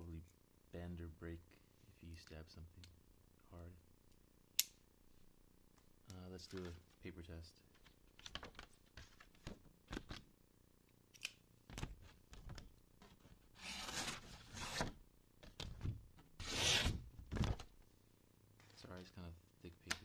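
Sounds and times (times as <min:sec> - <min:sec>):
paper rustling: 0:06.4 - 0:07.0, 0:07.7 - 0:10.2.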